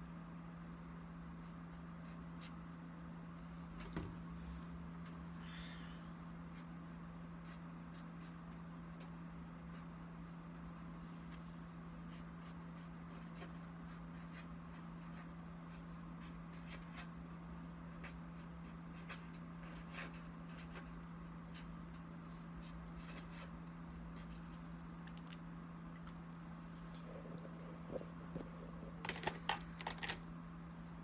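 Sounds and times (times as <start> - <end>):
steady low hum: 0.0 - 31.0
pen scratching on paper: 6.5 - 9.1, 12.1 - 24.6.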